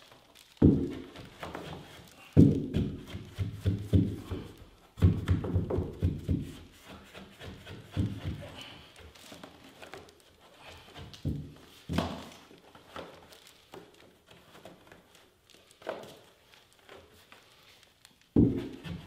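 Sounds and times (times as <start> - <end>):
knocks on carpeted wooden stair: 5.0 - 6.6, 18.4 - 19.0.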